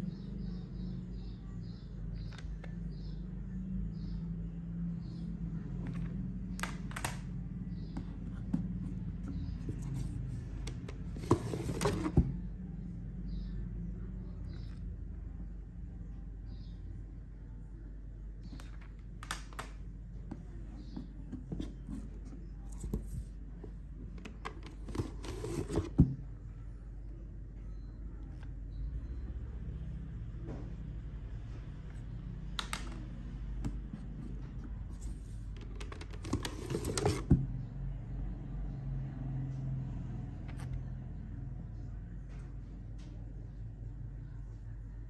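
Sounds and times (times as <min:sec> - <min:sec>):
plastic cd cases clicking: 0:06.6 - 0:07.2
card box rustling and sliding: 0:08.4 - 0:12.4, 0:24.3 - 0:26.2, 0:34.2 - 0:37.4.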